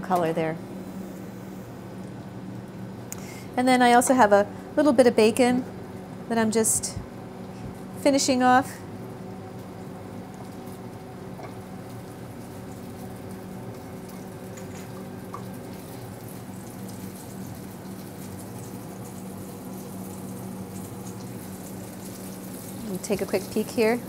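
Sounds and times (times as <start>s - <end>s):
food sizzling in a pan: 8.4s - 24.0s.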